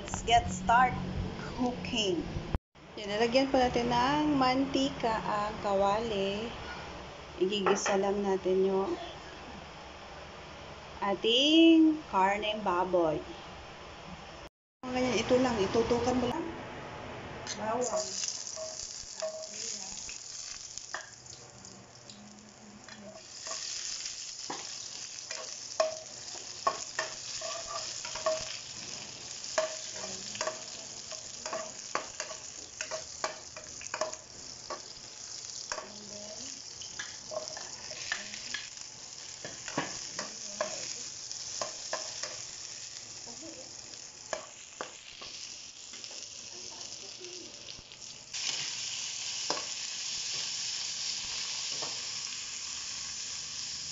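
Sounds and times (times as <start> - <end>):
garlic sizzling in hot oil: 17.5 - 53.9.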